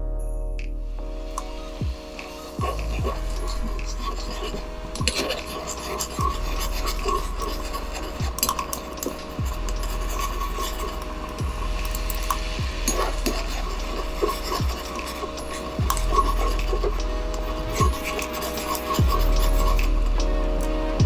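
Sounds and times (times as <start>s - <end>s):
spoon scraping sauce in wok: 2.6s - 20.0s
low thuds: 11.0s - 13.9s.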